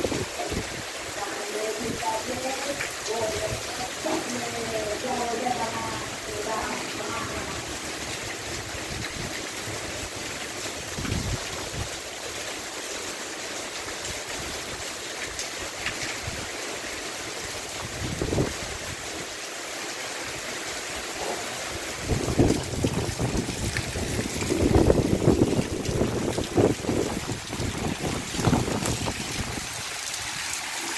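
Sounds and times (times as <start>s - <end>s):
heavy rain: 0.0s - 30.9s
wind gusts on microphone: 10.9s - 12.0s, 17.8s - 19.0s, 22.0s - 30.4s.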